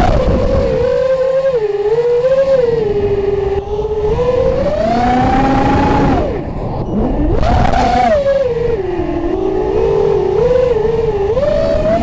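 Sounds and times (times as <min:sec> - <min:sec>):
quadcopter motors whining: 0:00.0 - 0:12.0.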